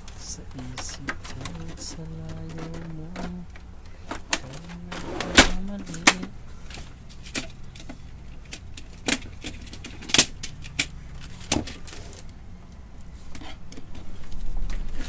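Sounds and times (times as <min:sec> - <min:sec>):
steady low hum: 0:00.0 - 0:15.0
plastic printer parts clicking: 0:00.5 - 0:12.4.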